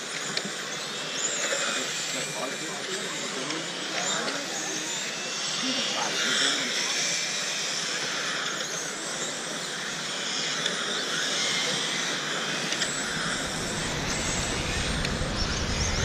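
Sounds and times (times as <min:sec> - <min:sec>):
remote control car motors whining: 0:00.0 - 0:16.0
low rumble: 0:13.0 - 0:16.0.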